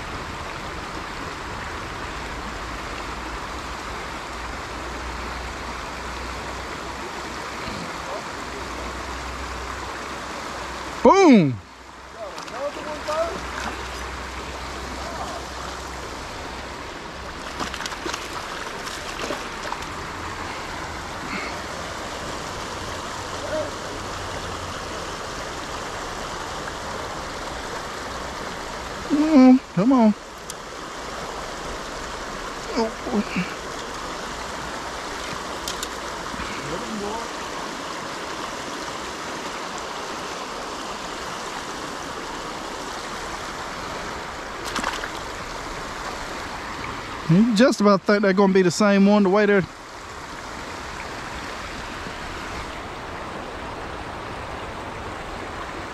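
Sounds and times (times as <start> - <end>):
creek water flowing: 0.0 - 55.9
fish splashing: 12.3 - 22.2, 44.4 - 47.0.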